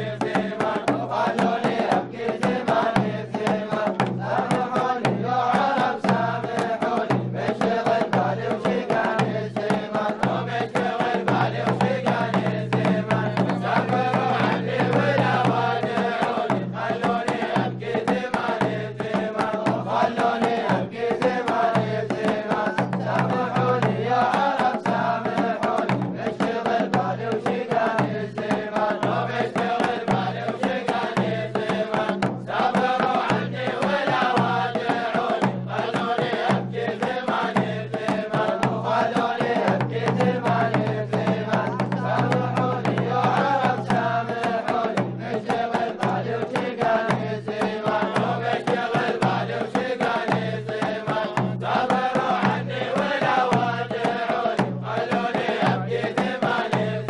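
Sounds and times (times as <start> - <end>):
hand drums beating: 0.0 - 57.0
men chanting together: 0.0 - 57.0.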